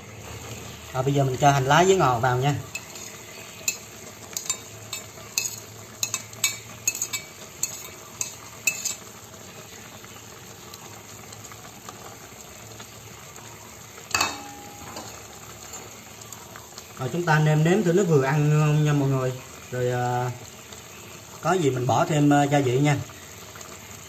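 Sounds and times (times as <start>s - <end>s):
stew simmering hiss: 0.0s - 24.0s
spoon clinking on plate and pot: 2.7s - 9.0s, 14.1s - 15.9s
utensil clatter: 2.7s - 9.0s.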